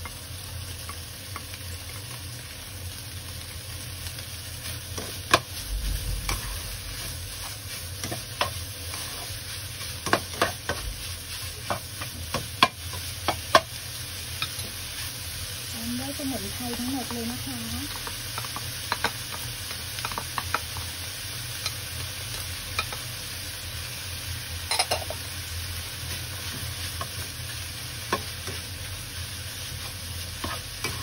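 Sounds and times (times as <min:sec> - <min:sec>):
food sizzling in a wok: 0:00.0 - 0:31.0
spatula scraping a pan: 0:06.2 - 0:10.8, 0:29.7 - 0:31.0.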